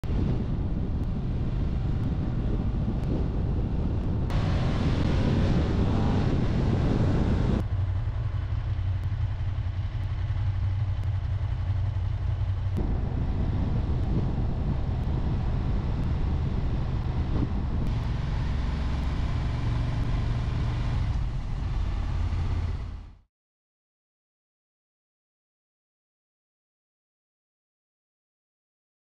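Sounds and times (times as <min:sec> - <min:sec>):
wind noise: 0:00.0 - 0:07.7, 0:12.7 - 0:22.9
motorcycle engine running: 0:00.0 - 0:23.2.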